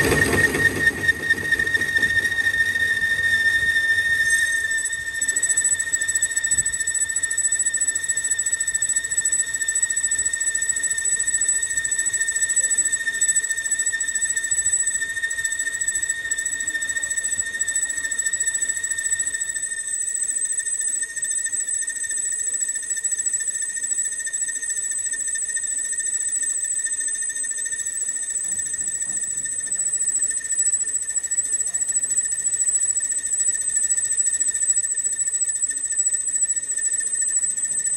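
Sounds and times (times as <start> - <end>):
lathe running: 0.0 - 5.4
boring tool squealing on metal: 0.0 - 37.9.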